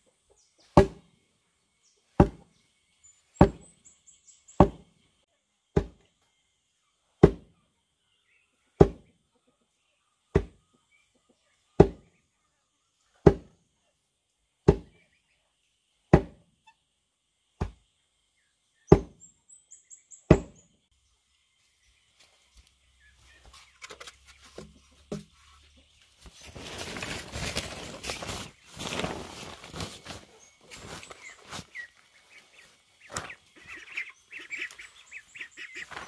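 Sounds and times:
heavy wooden thuds of pestle: 0.8s - 1.0s, 2.2s - 2.4s, 3.4s - 3.6s, 4.6s - 4.8s, 5.8s - 6.0s, 8.8s - 9.0s, 16.1s - 16.4s, 18.9s - 19.2s, 20.3s - 20.6s
bird chirping: 1.5s - 5.4s, 18.0s - 36.0s.

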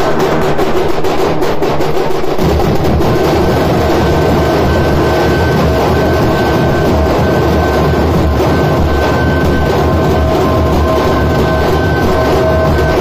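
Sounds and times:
dhol drums beaten with sticks: 0.0s - 13.0s
thin steady high tone: 3.5s - 13.0s.

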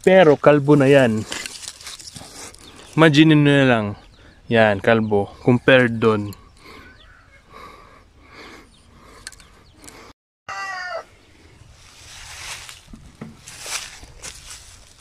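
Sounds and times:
footsteps in dry leaves: 0.4s - 3.0s, 11.5s - 15.0s
chicken call: 6.7s - 7.5s, 10.5s - 11.1s
soft chicken sounds: 6.7s - 7.5s, 10.5s - 11.5s.

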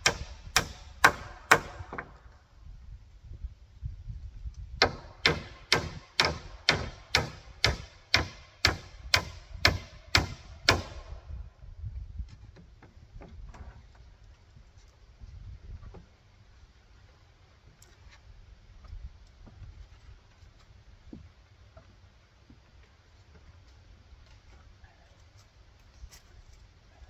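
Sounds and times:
hammer striking nail into wood: 0.0s - 2.2s, 4.8s - 11.1s.

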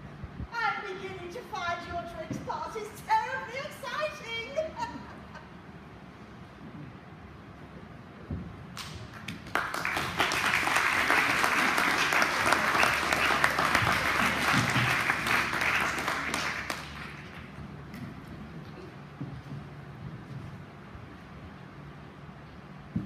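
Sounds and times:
audience applauding: 9.1s - 17.6s.

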